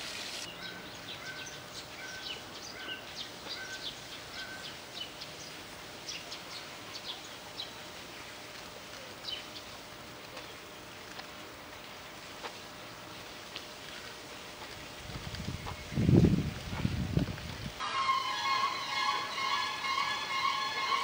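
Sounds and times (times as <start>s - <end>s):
outdoor hiss: 0.0s - 21.0s
small birds chirping: 0.1s - 11.0s, 12.7s - 17.0s.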